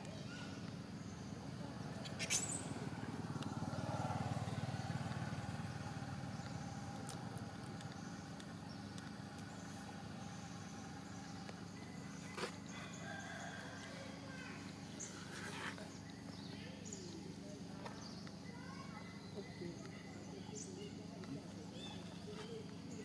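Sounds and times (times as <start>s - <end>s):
vehicle engine humming: 0.7s - 17.6s.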